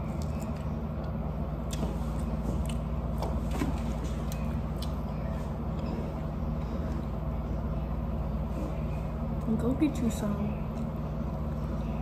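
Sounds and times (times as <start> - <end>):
chewing crunches: 0.0 - 3.4
steady low hum: 0.0 - 12.0.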